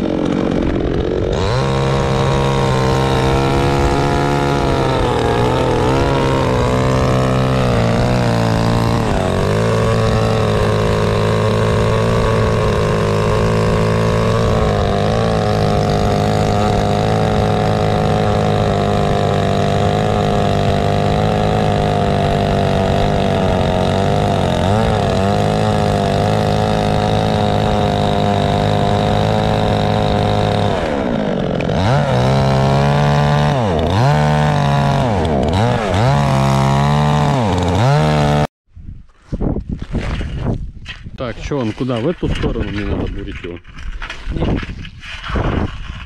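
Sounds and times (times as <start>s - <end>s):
chainsaw cutting ice: 0.0s - 38.5s, 41.4s - 46.0s.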